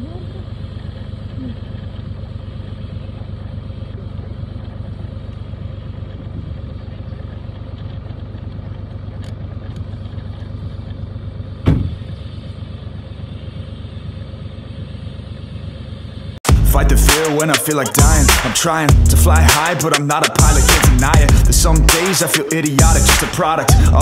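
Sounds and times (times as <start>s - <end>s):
truck engine rumbling: 0.0s - 24.0s
loud thump: 11.6s - 12.1s.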